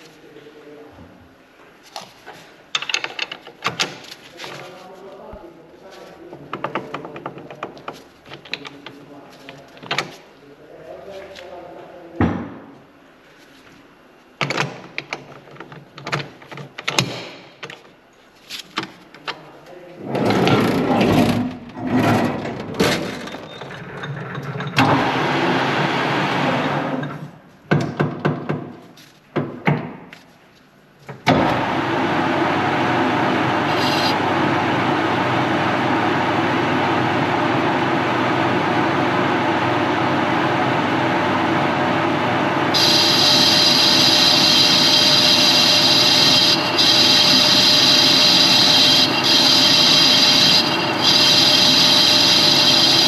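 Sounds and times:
machine tool humming: 33.4s - 35.9s, 41.6s - 53.0s.

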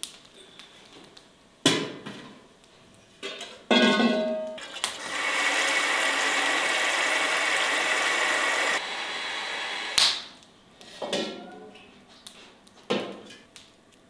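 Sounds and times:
water pouring from a tap: 4.8s - 8.8s.

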